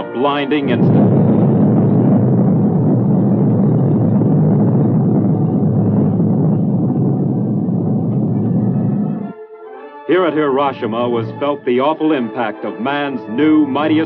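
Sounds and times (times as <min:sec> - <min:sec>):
explosion deep rumble: 0:00.2 - 0:09.4.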